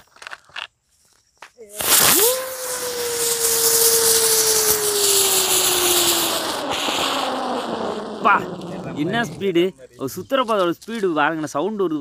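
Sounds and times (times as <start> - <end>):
ground spinner firework hissing: 1.6 - 9.8.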